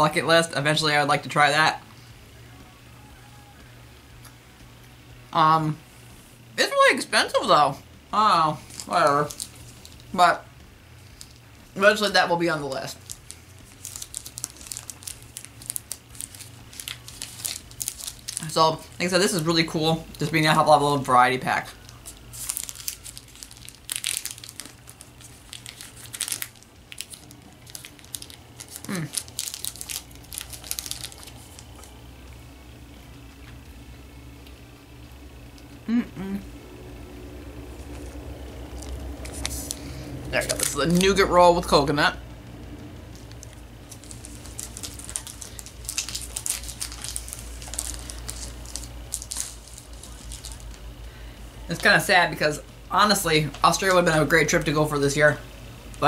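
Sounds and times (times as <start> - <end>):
snack wrapper crinkling: 8.6 - 10.1, 11.0 - 32.0, 37.7 - 41.2, 43.0 - 50.8.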